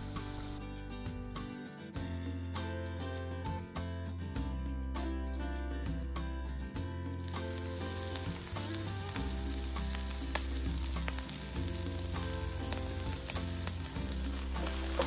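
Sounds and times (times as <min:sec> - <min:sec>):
chicken sizzling in a pan: 0:07.2 - 0:15.0.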